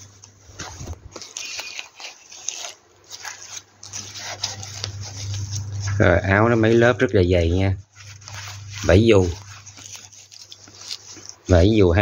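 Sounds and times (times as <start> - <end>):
small clicks and scrapes: 0.0 - 6.0, 8.0 - 11.5
nylon fabric rustling and crinkling: 0.0 - 12.0.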